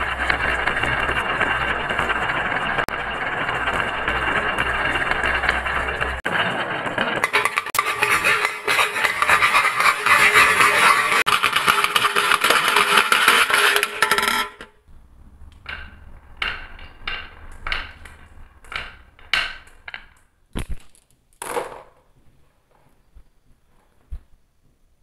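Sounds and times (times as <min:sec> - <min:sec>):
marbles rolling on wooden track: 0:00.0 - 0:14.8, 0:15.5 - 0:22.1
marbles clattering into metal bin: 0:10.3 - 0:14.8, 0:15.6 - 0:22.1.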